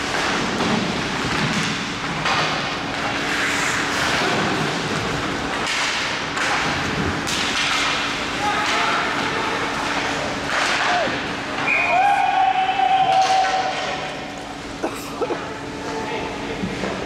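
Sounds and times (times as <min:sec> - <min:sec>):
steady low hum: 0:00.0 - 0:11.7, 0:13.6 - 0:17.0
skate blades scraping ice: 0:03.0 - 0:06.7.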